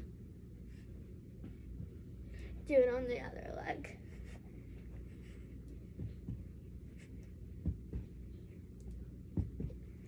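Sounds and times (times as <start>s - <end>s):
steady low hum: 0.0s - 10.0s
bare feet thumping on carpet: 1.3s - 2.2s, 5.7s - 8.4s, 9.0s - 10.0s.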